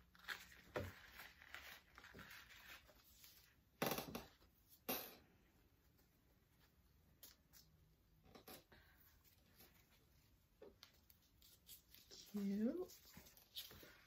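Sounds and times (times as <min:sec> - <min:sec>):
paper rustling: 0:00.0 - 0:03.6, 0:09.2 - 0:14.0.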